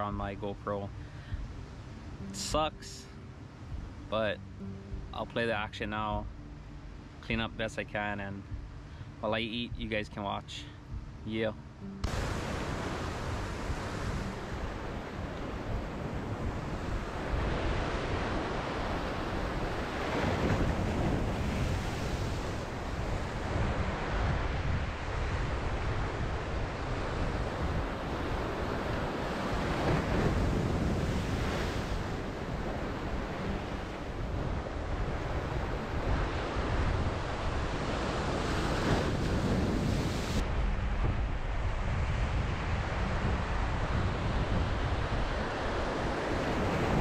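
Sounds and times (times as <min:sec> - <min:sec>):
ocean surf washing: 0:00.0 - 0:47.0
wind rumbling on microphone: 0:10.8 - 0:47.0.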